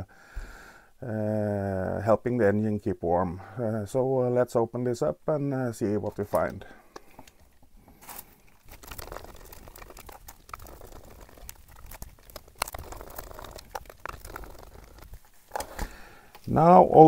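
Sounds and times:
small clicks and scrapes: 6.1 - 16.5.

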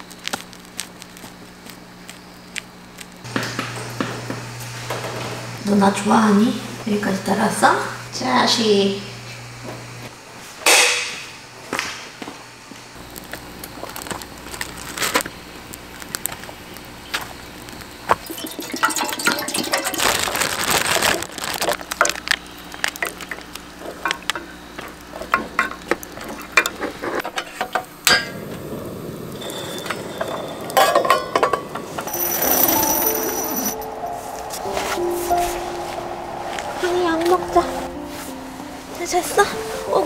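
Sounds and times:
campfire crackling: 0.0 - 3.4, 13.0 - 18.2, 27.9 - 39.3
music: 32.1 - 40.0.

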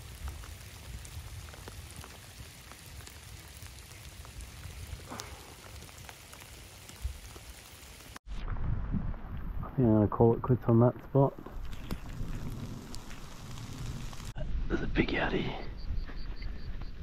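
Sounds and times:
rain falling on water and grass: 0.0 - 8.2, 10.4 - 14.4
low rumble: 8.3 - 16.9.

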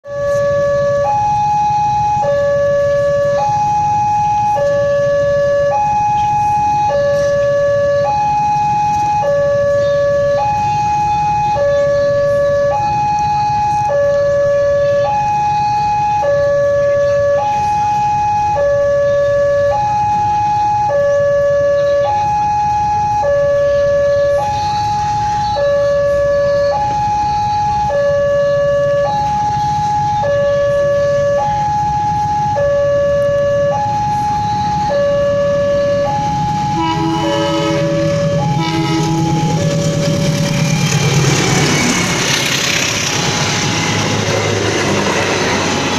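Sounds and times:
low train rumble: 0.0 - 45.9
two-tone crossing alarm: 0.0 - 45.9
train horn blasts: 36.7 - 40.4.

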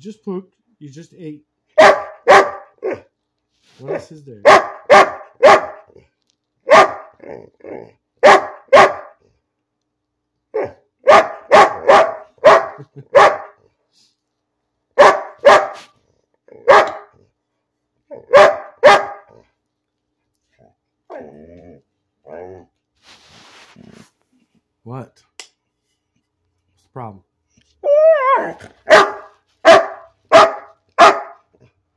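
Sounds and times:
large dog barking: 1.7 - 3.1, 3.9 - 6.0, 6.6 - 9.3, 10.5 - 13.6, 15.0 - 15.9, 16.5 - 17.2, 18.1 - 19.5, 28.2 - 31.7.

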